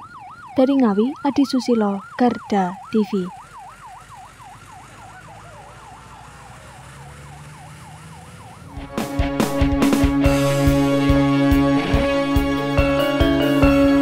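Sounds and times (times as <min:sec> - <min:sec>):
ambulance siren wailing: 0:00.0 - 0:14.0
music sting with sharp beats: 0:08.8 - 0:14.0.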